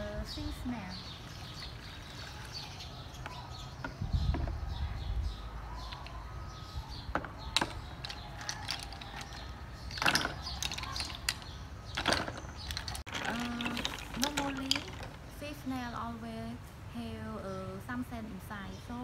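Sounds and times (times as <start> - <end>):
shells clattering into plastic basin: 7.1 - 15.2.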